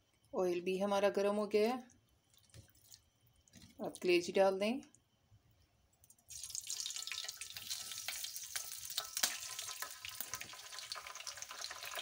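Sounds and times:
chicken liver frying in oil: 0:06.3 - 0:12.0.

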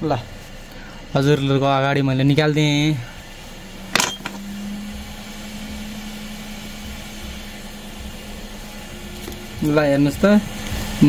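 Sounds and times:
hot air gun blower humming: 0:02.1 - 0:11.0.

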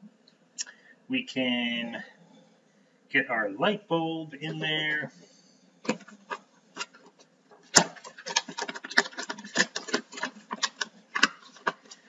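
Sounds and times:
packaging crinkling and tapping: 0:05.8 - 0:12.0.

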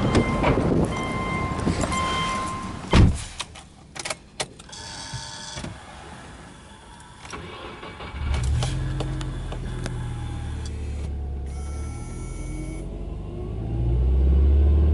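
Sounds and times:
car door shutting: 0:02.9 - 0:03.4
car engine starting and idling: 0:05.6 - 0:14.9
high ignition whine: 0:05.8 - 0:14.6.

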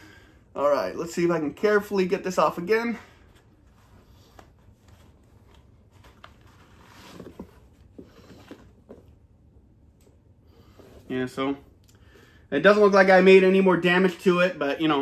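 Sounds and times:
rubber mask rubbing and rustling: 0:03.2 - 0:09.3.

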